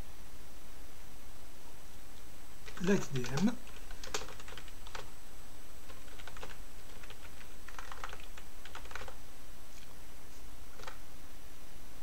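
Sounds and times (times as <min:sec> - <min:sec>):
keyboard keys clicking: 0:02.7 - 0:05.1, 0:05.9 - 0:09.2.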